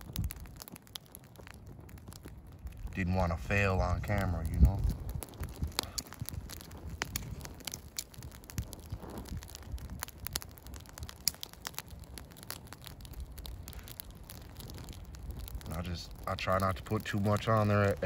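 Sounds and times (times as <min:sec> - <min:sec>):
campfire crackling and popping: 0:00.0 - 0:18.0
wind rumble on microphone: 0:00.0 - 0:18.0.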